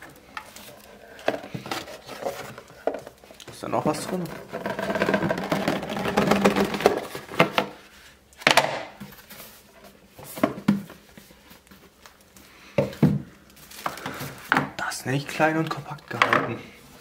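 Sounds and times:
packaging rustling and scraping: 0:00.0 - 0:08.1.

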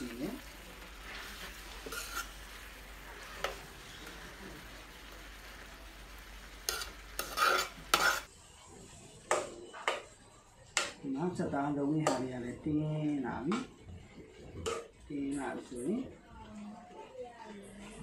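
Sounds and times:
low sizzle: 0:00.0 - 0:10.6
metal ladle scraping pan: 0:01.0 - 0:03.6, 0:06.6 - 0:08.3.

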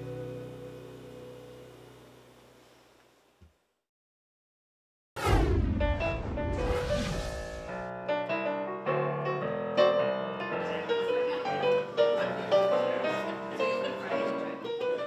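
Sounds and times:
rushing noise: 0:05.2 - 0:07.9
piano music: 0:07.2 - 0:15.0.

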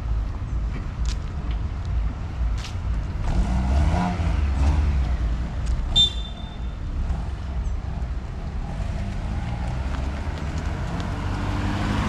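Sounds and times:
motor vehicle rumble: 0:00.0 - 0:12.0
high whistle-like chirp: 0:05.9 - 0:06.8.

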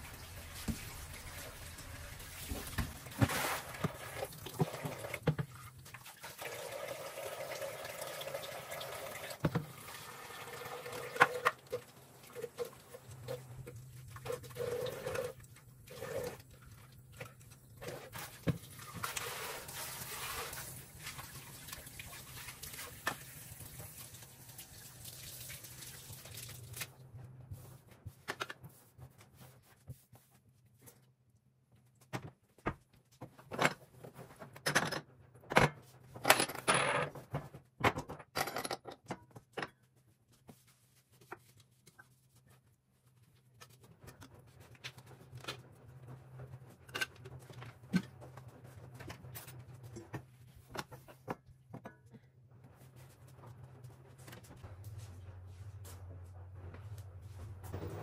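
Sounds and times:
water running from tap into sink: 0:00.0 - 0:17.5, 0:18.2 - 0:26.9.

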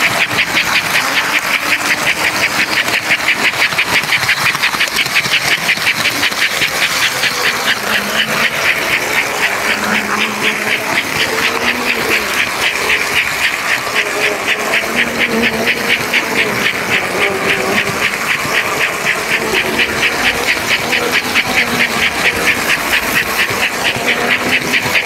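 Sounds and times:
low motor hum: 0:00.0 - 0:25.0
toy train rhythmic clatter: 0:00.0 - 0:25.0.

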